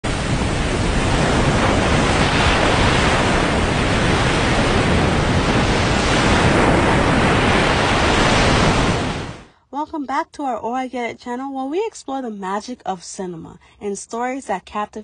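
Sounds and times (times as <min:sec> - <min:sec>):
ocean waves breaking on beach: 0:00.0 - 0:09.5.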